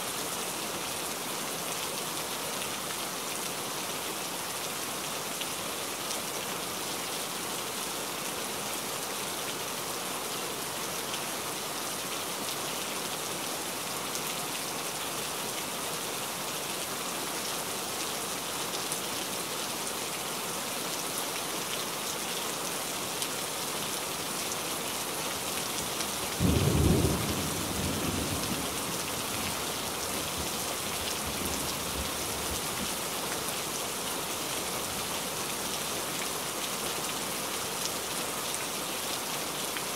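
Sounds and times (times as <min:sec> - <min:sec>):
rain on foliage: 0:00.0 - 0:39.9.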